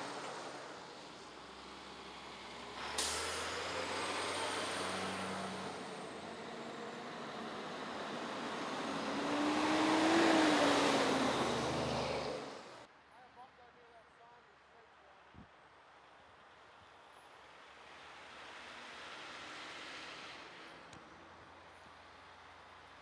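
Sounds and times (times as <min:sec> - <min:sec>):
fire trucks driving past: 0:00.0 - 0:12.9, 0:17.6 - 0:23.0
air brakes hissing: 0:02.8 - 0:05.6.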